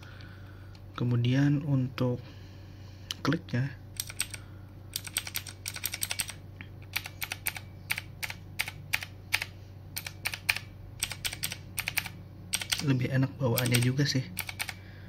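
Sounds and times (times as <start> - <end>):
mechanical keyboard clicking: 4.0 - 4.4, 5.0 - 13.0, 13.6 - 14.8.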